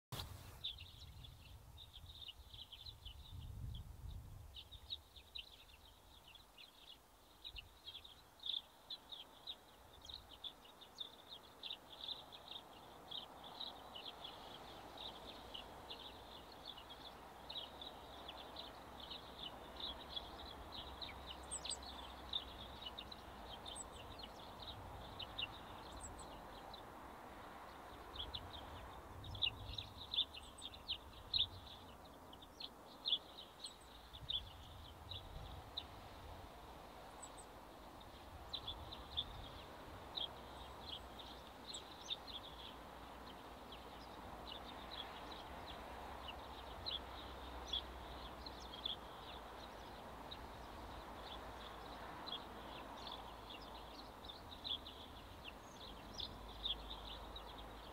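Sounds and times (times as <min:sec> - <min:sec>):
faint low background noise: 0:00.1 - 0:57.9
small songbirds chirping: 0:00.2 - 0:57.9.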